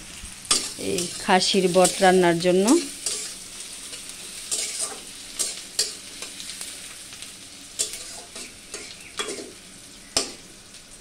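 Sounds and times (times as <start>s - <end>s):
onions sizzling in a pan: 0.0s - 11.0s
metal spatula scraping a pan: 0.5s - 6.5s, 7.7s - 9.6s, 10.2s - 10.4s.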